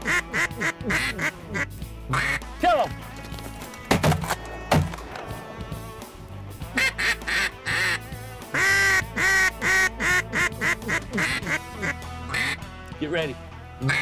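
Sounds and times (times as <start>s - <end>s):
duck call quacks: 0.0s - 2.5s, 6.7s - 12.7s, 13.8s - 14.0s.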